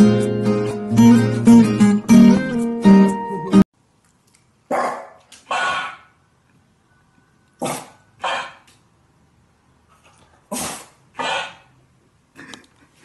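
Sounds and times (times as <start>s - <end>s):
dog barking gruffly: 4.7s - 6.1s, 7.6s - 8.7s, 10.5s - 11.8s.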